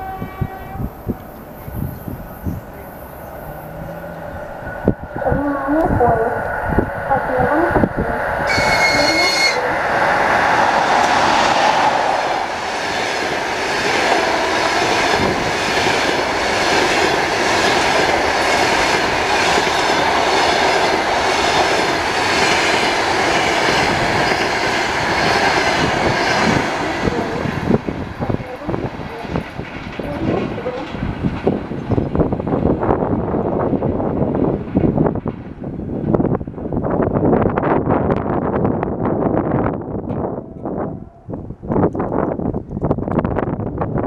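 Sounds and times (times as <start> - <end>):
high-pitched train horn: 0.0 - 1.2, 8.5 - 9.8, 14.1 - 15.0, 40.2 - 41.5
train passing at speed: 0.0 - 44.0.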